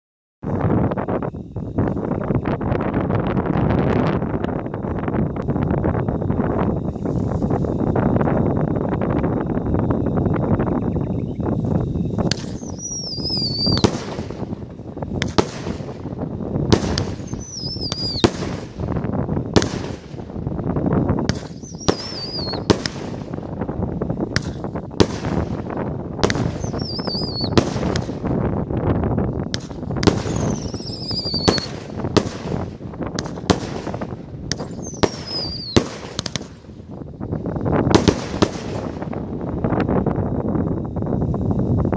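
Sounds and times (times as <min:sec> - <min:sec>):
whistling firework shots: 0:03.9 - 0:37.0, 0:37.7 - 0:39.9
firework launch and burst bangs: 0:12.2 - 0:20.6, 0:21.2 - 0:23.6, 0:24.3 - 0:28.6, 0:29.5 - 0:36.8, 0:37.8 - 0:39.4.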